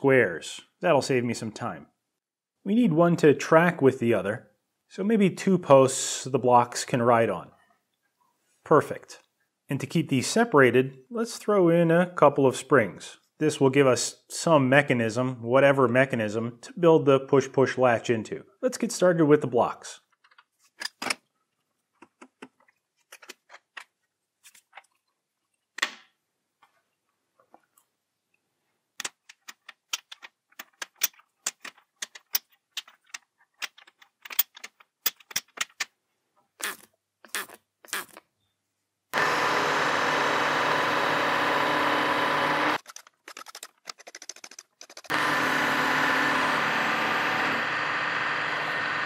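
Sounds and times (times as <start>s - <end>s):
milling machine cutting: 39.2s - 42.8s, 45.1s - 49.0s.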